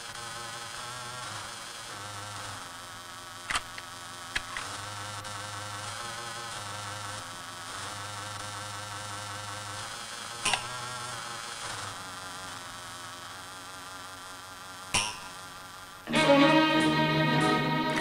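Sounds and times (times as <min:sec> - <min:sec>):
insect-like buzzing drone: 0:00.0 - 0:18.0.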